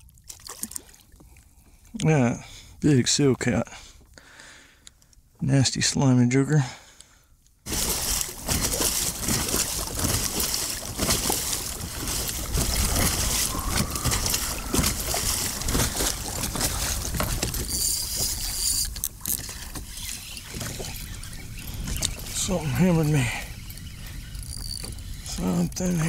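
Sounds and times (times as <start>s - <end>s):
water splashing along kayak: 0.0s - 1.9s, 7.6s - 26.0s
wind buffeting microphone: 8.6s - 18.5s, 20.4s - 26.0s.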